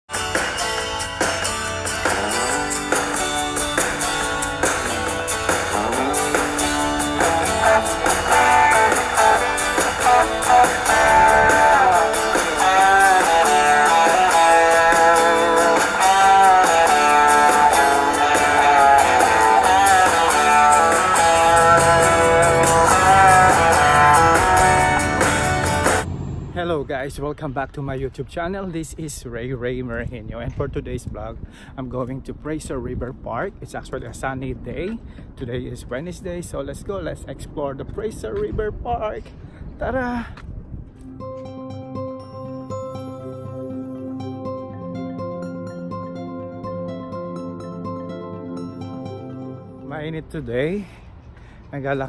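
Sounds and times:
plucked guitar melody: 0.1 - 26.5, 41.0 - 50.0
low bass line: 1.4 - 28.0.

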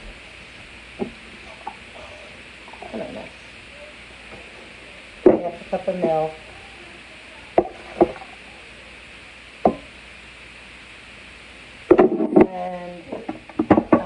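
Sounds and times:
steady hiss: 0.0 - 14.0.

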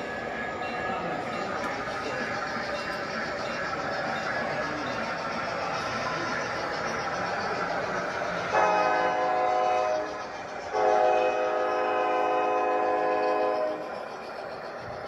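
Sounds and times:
model locomotive horn blasts: 8.5 - 13.9.

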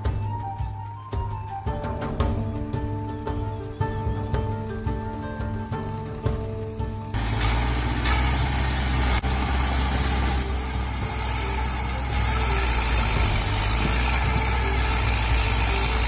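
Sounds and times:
tractor engine idling: 4.4 - 16.0.

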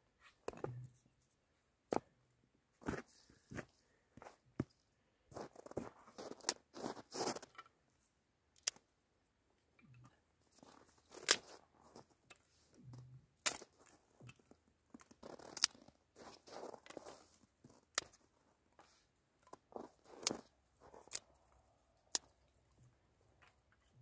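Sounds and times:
sticks cracking: 13.4 - 13.7, 15.2 - 15.9.

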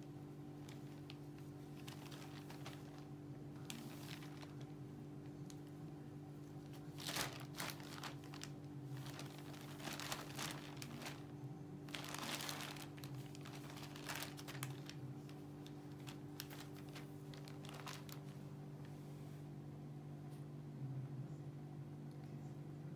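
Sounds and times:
steady low hum: 0.0 - 22.9
plastic bag crinkling: 0.4 - 4.8, 6.6 - 18.5.

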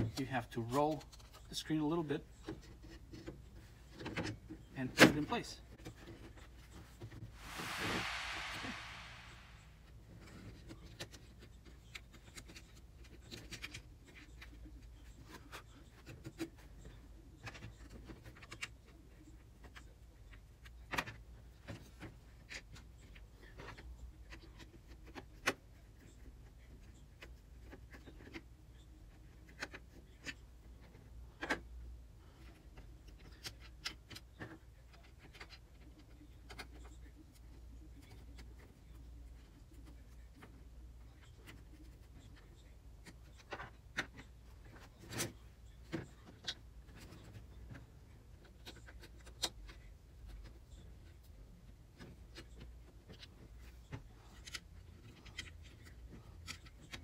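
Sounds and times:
low steady hum: 7.3 - 9.8.

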